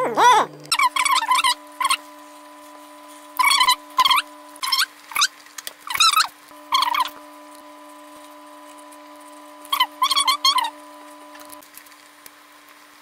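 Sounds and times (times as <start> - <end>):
steady electrical hum: 0.0 - 13.0
animal high-pitched chirping: 0.1 - 2.0.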